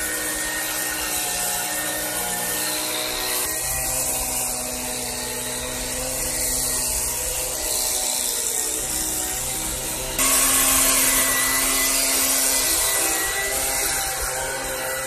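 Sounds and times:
leaf blower running: 0.0 - 15.0.

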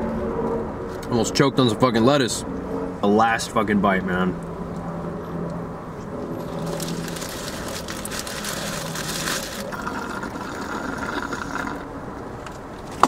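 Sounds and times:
paper wrapper crinkling: 6.4 - 9.8
drink slurped through straw: 6.8 - 11.9.

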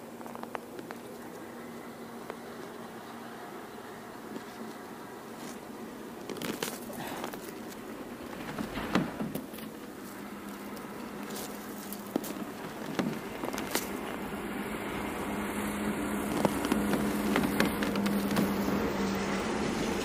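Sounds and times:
small clicks and scrapes: 0.0 - 1.4, 4.3 - 14.4, 15.0 - 18.9
steady low hum: 0.0 - 20.0
rustling of gloves and clothing: 4.2 - 19.0.

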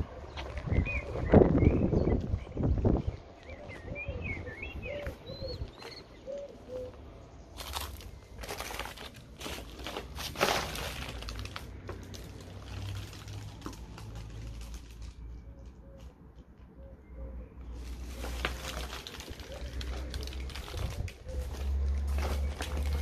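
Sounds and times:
small birds chirping: 0.1 - 8.6
footsteps on paper and debris: 7.5 - 16.1, 17.7 - 23.0.

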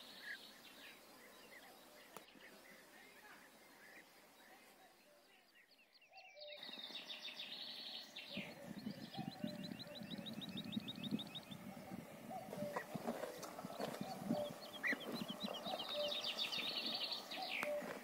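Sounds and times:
birds chirping trills: 0.0 - 18.0
faint outdoor hush: 0.0 - 18.0
cow chewing: 12.3 - 18.0.

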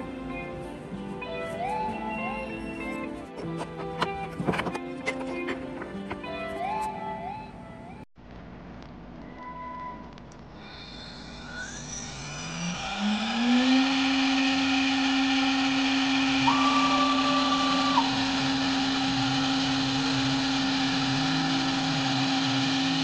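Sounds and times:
router spindle whining: 10.6 - 23.0.

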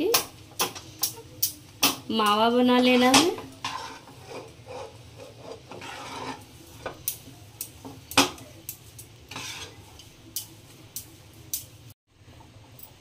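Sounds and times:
spatula scraping dough in pan: 2.8 - 8.4, 9.0 - 10.5.

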